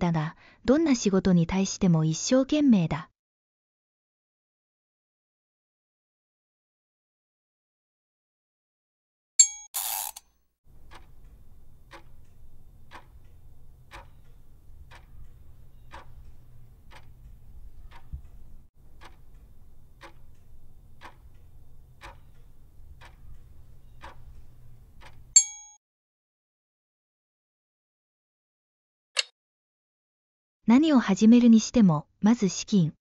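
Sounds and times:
clock ticking: 10.7s - 25.4s
bell-like ding: 25.4s - 25.8s.

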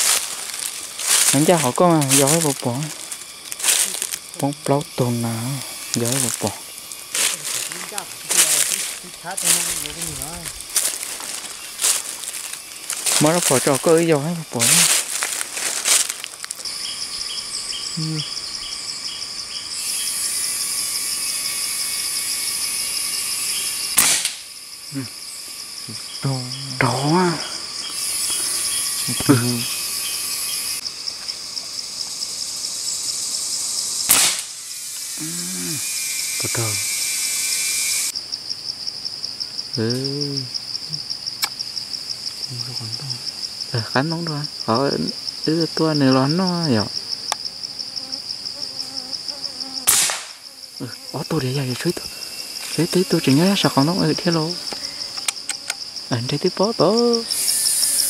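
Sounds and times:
dry leaves rustling: 0.0s - 16.8s
high hiss: 0.0s - 38.2s, 56.8s - 58.0s
insects trilling: 0.0s - 58.0s
loud high hiss: 19.7s - 25.1s, 25.9s - 30.8s, 32.8s - 38.1s, 57.1s - 58.0s
short voice: 35.2s - 35.8s.

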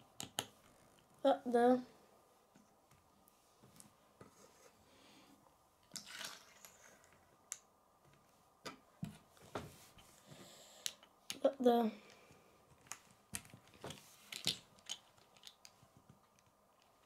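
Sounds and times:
plastic pieces tapping on wood: 12.8s - 16.9s.

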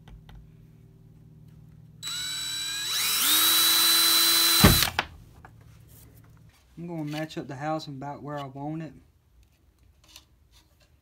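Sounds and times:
cordless drill whining: 2.0s - 5.0s
drill thump: 2.0s - 5.1s.

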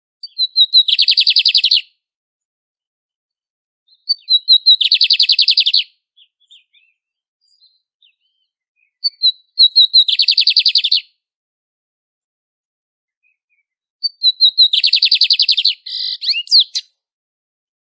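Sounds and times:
bird singing with trill: 0.2s - 1.9s, 3.9s - 11.2s, 13.1s - 17.0s.

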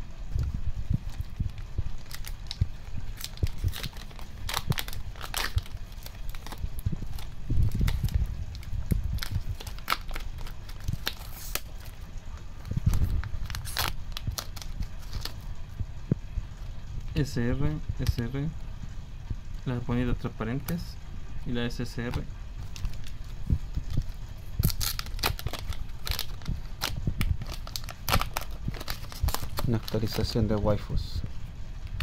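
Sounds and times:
plastic wrappers crinkling: 1.0s - 15.4s, 22.1s - 30.7s.

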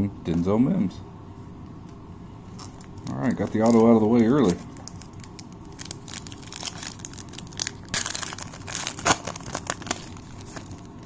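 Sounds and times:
foil wrapper crinkling: 2.6s - 11.0s.

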